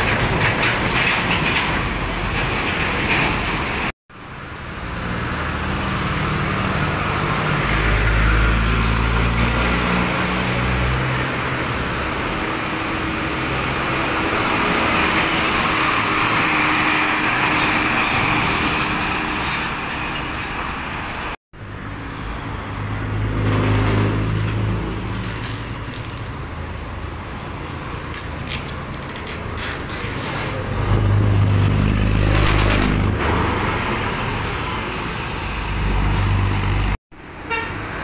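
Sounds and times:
tyre and road noise: 0:00.0 - 0:38.0
engine hum: 0:20.5 - 0:37.4.

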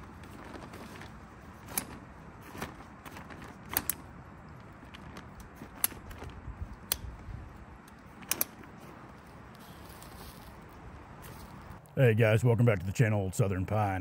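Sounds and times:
folding chair frame clicking: 0:00.4 - 0:04.1, 0:07.9 - 0:08.8.

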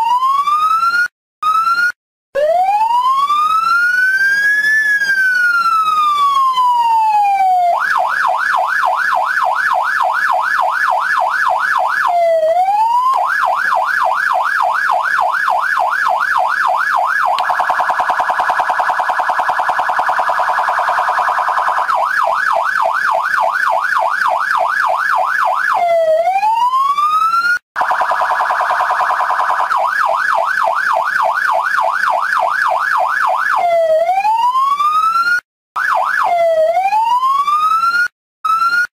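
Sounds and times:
electronic police siren: 0:00.0 - 0:38.9.

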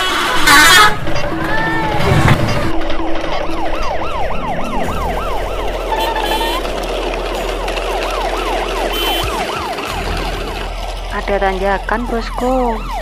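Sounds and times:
siren wailing: 0:01.8 - 0:13.0
toy truck wheels rolling on paving: 0:05.3 - 0:12.9.

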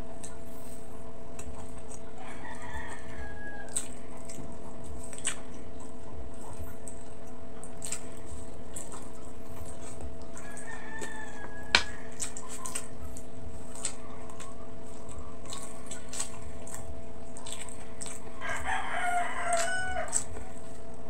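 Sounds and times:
wet chewing sounds: 0:00.0 - 0:21.0
rooster crowing: 0:02.2 - 0:03.8, 0:10.4 - 0:12.2, 0:18.4 - 0:20.4.

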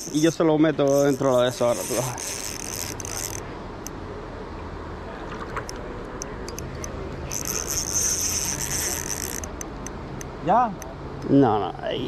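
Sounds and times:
fishing reel whirring: 0:00.0 - 0:03.5, 0:06.4 - 0:09.9
low water noise: 0:00.0 - 0:11.2
scattered clicks: 0:05.3 - 0:11.3.

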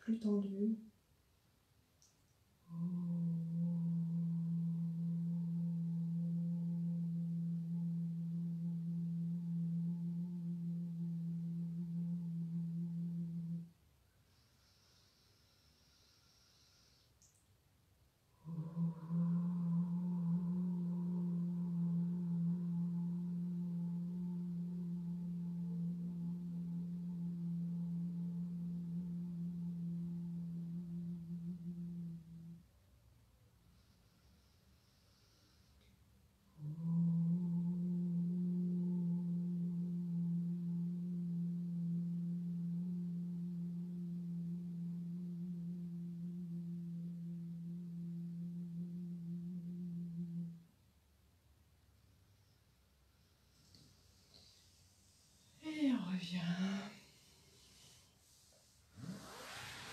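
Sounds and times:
woman holding low vocal tone: 0:02.6 - 0:13.7, 0:18.4 - 0:32.7, 0:36.5 - 0:50.7, 0:55.6 - 0:59.9
woman holding a low note: 0:18.4 - 0:32.6.

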